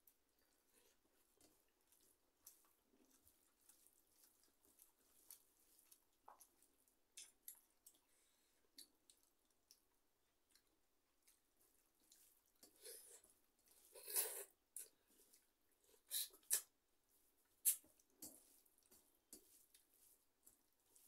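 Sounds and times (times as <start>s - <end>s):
chewing: 0.0s - 16.8s, 17.4s - 21.0s
fingers squishing food: 0.1s - 13.8s.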